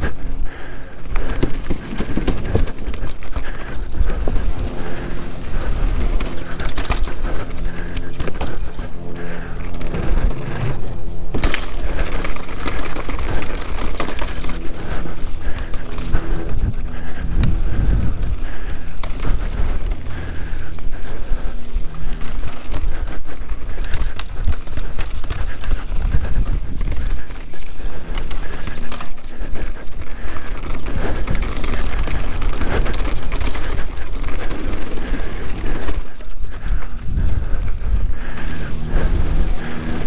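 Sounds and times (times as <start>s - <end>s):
bike rattling and knocking: 0.0s - 40.0s
bike tyres on trail: 0.0s - 40.0s
wind on microphone: 16.2s - 18.5s, 25.8s - 27.1s, 36.6s - 40.0s.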